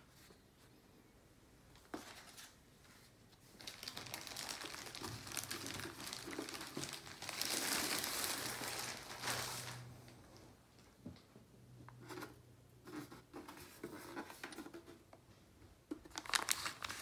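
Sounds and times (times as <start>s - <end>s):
plastic bag crinkling: 3.5s - 10.2s, 16.0s - 17.0s.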